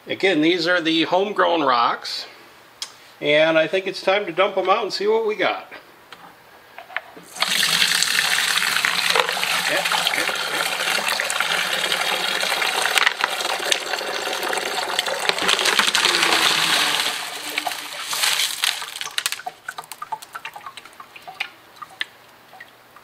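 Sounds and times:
slurry pouring through sieve: 15.1 - 20.2
rocks clicking: 15.2 - 22.1
drips and clinks: 17.0 - 22.8.

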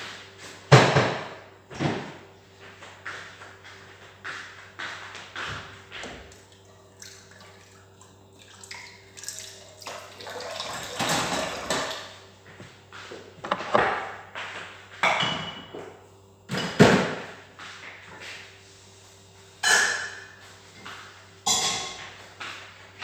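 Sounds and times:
clatter of kitchen items: 0.7 - 2.2, 9.9 - 12.2, 13.1 - 15.9, 16.5 - 17.3, 20.8 - 22.7
running water: 6.3 - 12.0.

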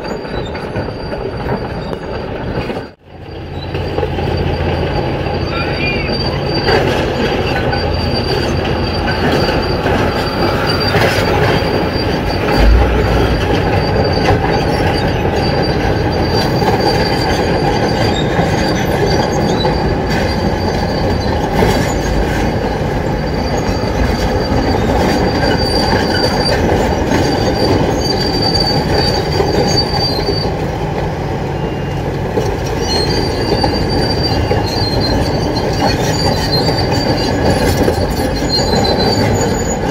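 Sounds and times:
steel tracks squealing and clanking: 0.0 - 39.9
excavators running: 0.4 - 39.9
low thud: 12.5 - 15.0.

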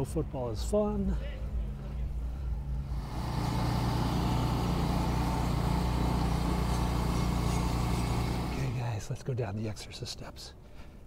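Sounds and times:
vehicle engine humming: 1.5 - 9.0.

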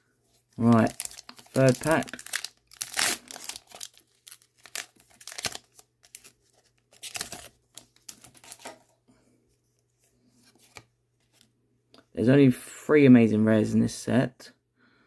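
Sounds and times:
foil wrapper tearing and crinkling: 0.6 - 8.7.

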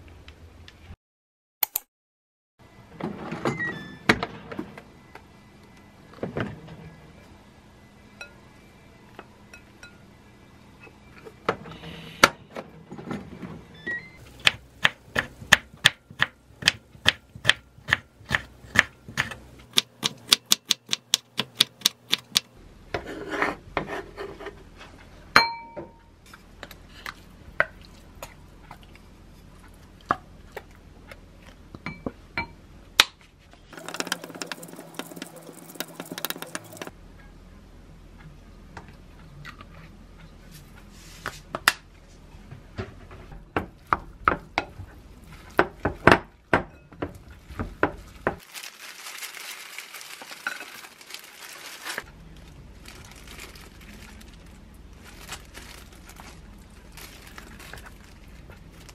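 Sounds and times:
glass bowl clinking: 25.4 - 26.0.

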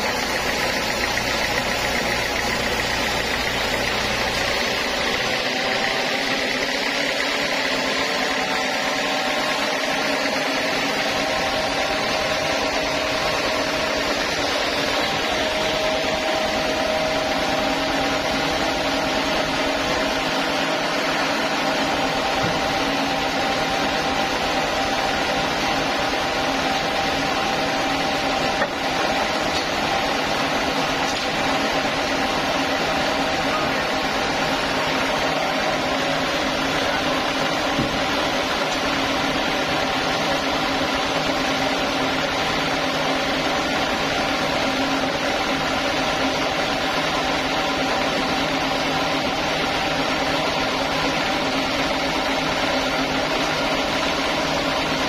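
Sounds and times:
band saw cutting wood: 0.0 - 55.0.

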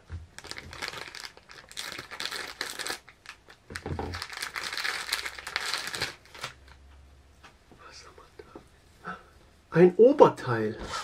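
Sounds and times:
plastic bag crinkling: 0.3 - 6.8.

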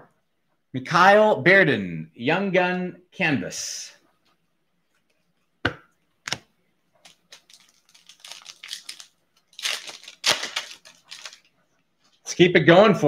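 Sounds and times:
foil wrapper crinkling: 7.0 - 11.5.

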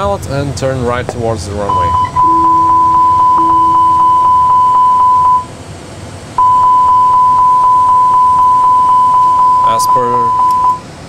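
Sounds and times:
pulsing cockpit warning alarm: 1.6 - 5.5, 6.4 - 10.8.

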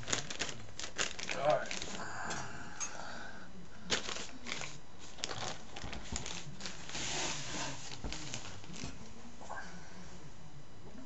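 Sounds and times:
plastic bag crinkling: 0.0 - 2.1, 3.9 - 9.1.

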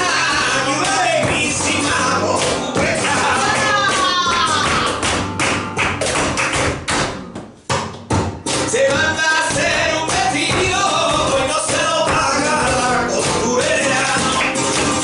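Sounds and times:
woman singing: 0.0 - 5.0
cajon drumming: 0.0 - 15.0
guitar: 0.0 - 15.0
shoes stamping on wooden stage: 0.2 - 15.0.

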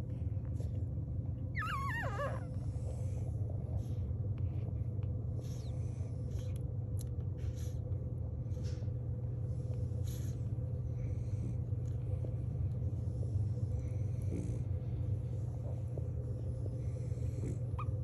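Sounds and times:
low hum: 0.0 - 18.0
puppies suckling: 0.4 - 6.6.

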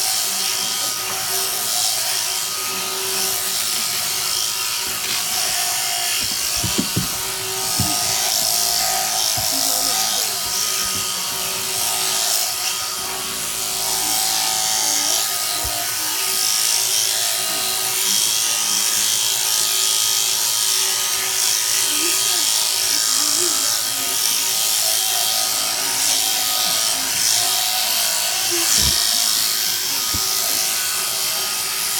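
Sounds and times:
electric shears buzzing: 0.0 - 31.9
sharp knocks: 6.1 - 8.8.

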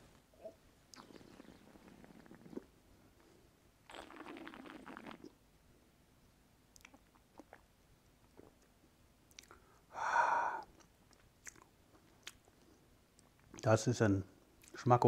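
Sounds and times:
wet mouth sounds: 0.4 - 2.7, 3.9 - 5.4, 6.8 - 7.7, 9.3 - 9.6, 10.5 - 12.5
lip smacks and tongue clicks: 6.7 - 7.7, 9.3 - 9.6, 10.6 - 12.5
person breathing out: 9.9 - 10.7.

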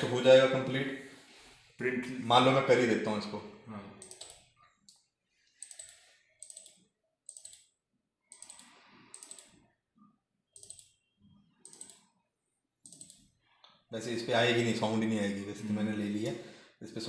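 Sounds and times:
computer mouse clicking: 4.0 - 9.7, 10.5 - 11.0, 11.6 - 12.2, 12.8 - 13.8.

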